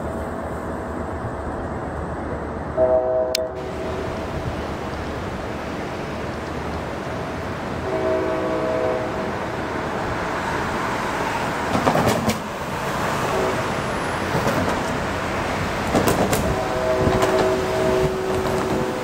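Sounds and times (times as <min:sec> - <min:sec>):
locomotive rumble: 0:00.0 - 0:19.0
train air horn: 0:02.8 - 0:04.2, 0:07.8 - 0:09.4, 0:13.2 - 0:13.8, 0:16.4 - 0:19.0.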